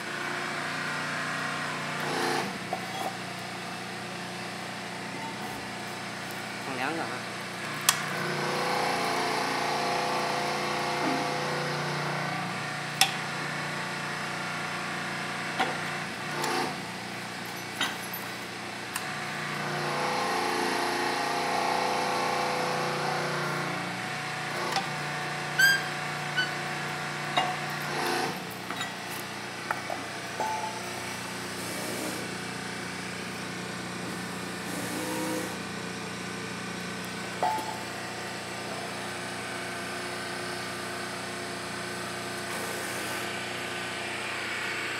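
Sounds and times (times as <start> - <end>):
electric pump humming: 0.0 - 44.9
sharp metal clanks and knocks: 27.3 - 27.8, 29.9 - 31.0, 37.4 - 37.8.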